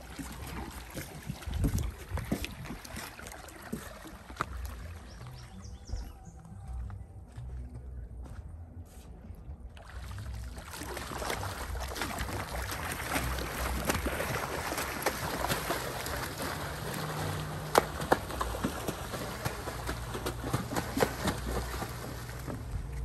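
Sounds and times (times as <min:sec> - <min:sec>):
water splashing and crackling: 0:00.0 - 0:06.0, 0:09.7 - 0:23.0
low rumble: 0:11.4 - 0:23.0.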